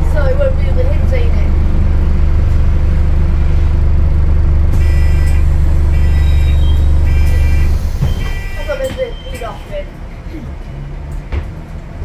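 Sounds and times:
bus drivetrain deep hum: 0:00.0 - 0:12.0
high electronic beeps: 0:06.0 - 0:09.4.

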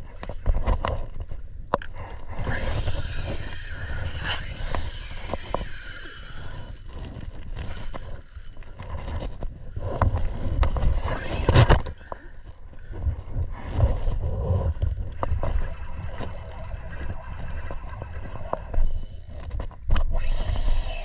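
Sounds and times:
water against hull: 0:00.0 - 0:21.0
wind on microphone: 0:02.0 - 0:21.0
fishing reel whirring and clicking: 0:02.4 - 0:13.0, 0:15.0 - 0:21.0.

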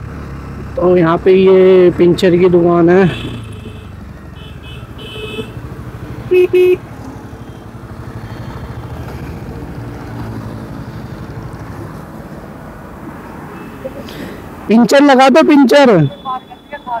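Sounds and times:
horn beeping: 0:03.0 - 0:05.6, 0:06.2 - 0:06.8, 0:13.5 - 0:14.0, 0:15.6 - 0:17.0.

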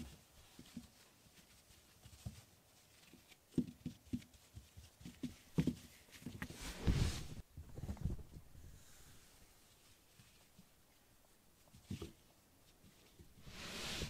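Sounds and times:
fur rubbing on microphone: 0:06.4 - 0:10.0, 0:13.4 - 0:14.0.

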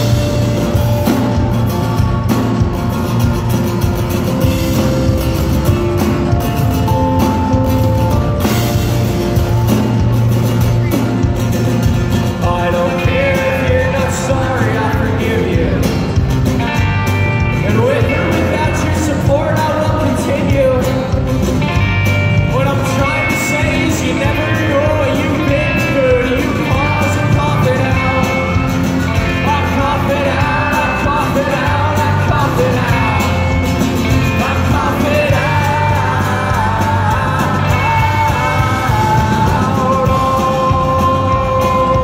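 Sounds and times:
bass guitar: 0:00.0 - 0:42.0
drums: 0:00.0 - 0:42.0
electric and acoustic guitars: 0:00.0 - 0:42.0
person singing: 0:12.3 - 0:16.2, 0:17.6 - 0:21.4, 0:22.4 - 0:42.0.

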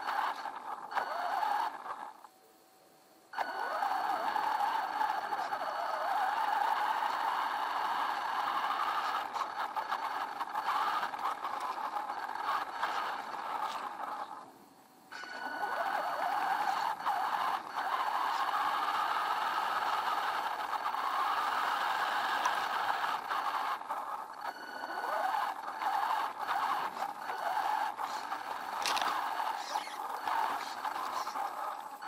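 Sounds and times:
toy truck motor whining: 0:00.0 - 0:02.3, 0:03.3 - 0:14.5, 0:15.1 - 0:32.0
chassis rattling and scraping: 0:25.5 - 0:32.0.

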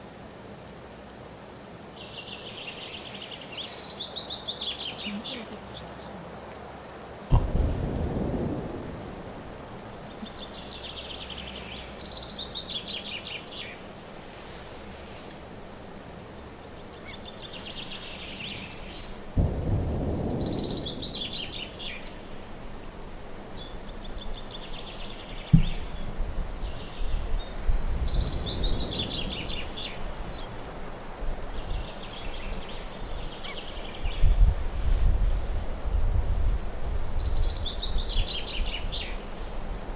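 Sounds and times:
sharp knock: 0:07.3 - 0:07.6, 0:25.5 - 0:25.8
low rumbles: 0:07.3 - 0:10.5, 0:19.4 - 0:22.6.

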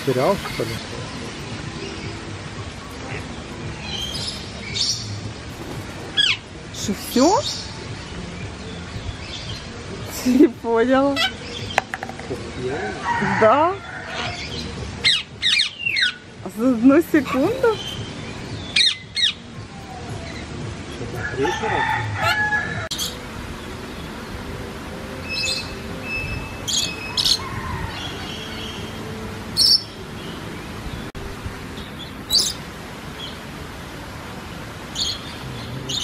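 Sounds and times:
steady background hiss: 0:00.0 - 0:13.5, 0:14.4 - 0:36.0
parrots screeching: 0:21.2 - 0:23.1.

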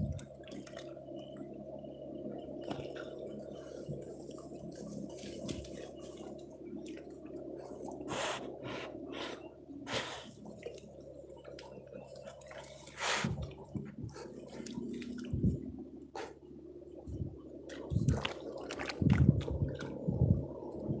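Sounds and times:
dogs sniffing: 0:07.9 - 0:10.7, 0:12.2 - 0:15.3, 0:16.1 - 0:16.4.

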